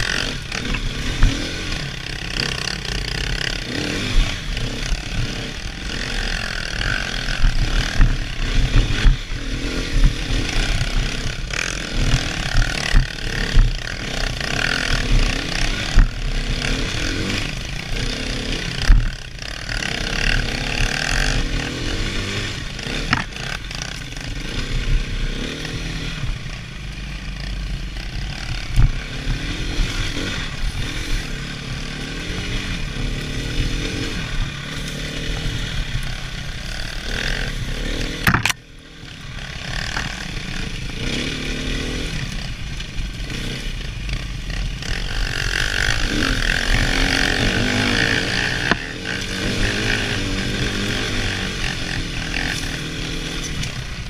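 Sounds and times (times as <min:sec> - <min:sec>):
dirt bike engine revving: 0:00.0 - 0:54.0
sharp knocks from bumpy ground: 0:23.1 - 0:23.4, 0:38.0 - 0:38.6.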